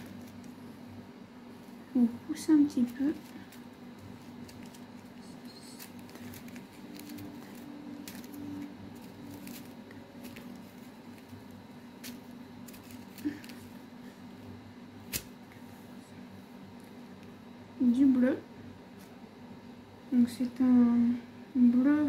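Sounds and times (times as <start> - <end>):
plastic bags rustling and clicking: 0.0 - 0.6, 2.3 - 13.7
steady low hum: 0.0 - 22.0.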